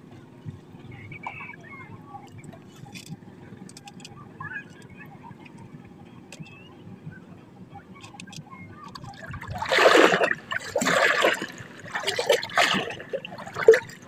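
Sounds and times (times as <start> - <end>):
water splashing against boat hull: 8.0 - 14.0.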